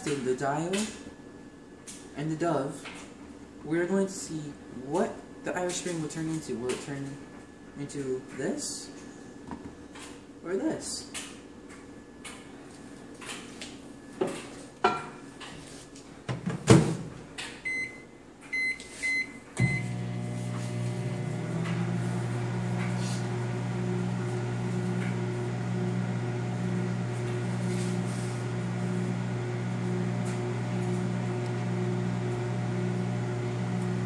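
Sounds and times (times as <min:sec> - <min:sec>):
microwave humming: 0:16.2 - 0:34.0
keypad beeps: 0:17.6 - 0:19.8.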